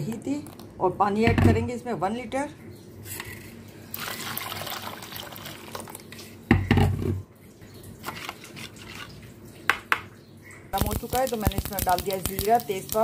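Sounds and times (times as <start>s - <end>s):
water pouring into plastic bowl: 3.9s - 6.0s.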